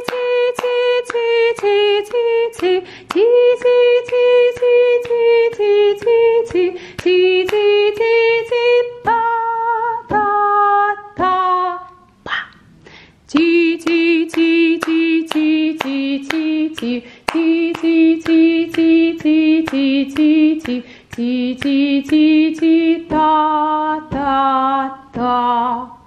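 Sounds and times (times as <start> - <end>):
hands clapping: 0.0 - 7.6, 13.3 - 22.2
woman singing melody: 0.0 - 12.4, 13.2 - 26.0.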